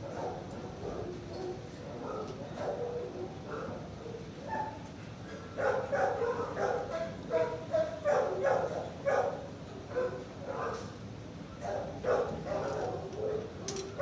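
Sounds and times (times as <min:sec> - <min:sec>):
dogs barking and yipping: 0:05.6 - 0:10.8, 0:11.6 - 0:14.0.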